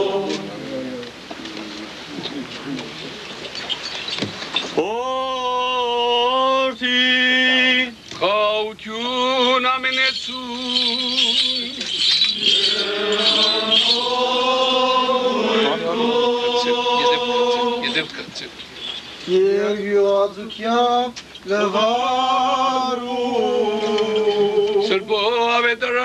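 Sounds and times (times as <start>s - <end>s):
man singing chant: 0.0s - 1.0s, 4.8s - 18.1s, 19.3s - 26.0s
metallic jingling: 3.5s - 4.7s, 9.8s - 15.1s.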